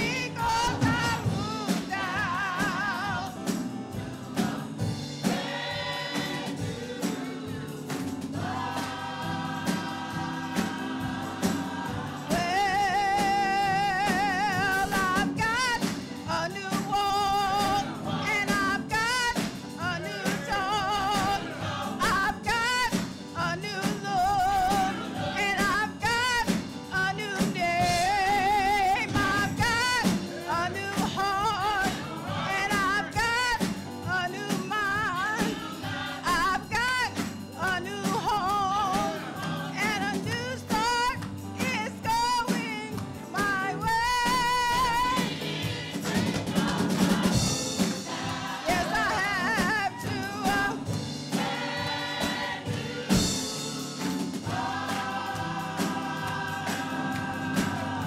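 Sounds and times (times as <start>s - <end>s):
choir singing: 0.0s - 15.4s, 16.7s - 23.0s, 23.9s - 26.0s, 27.8s - 36.7s, 38.1s - 40.3s, 44.8s - 58.0s
drum kit: 0.0s - 58.0s
upright piano: 0.0s - 58.0s.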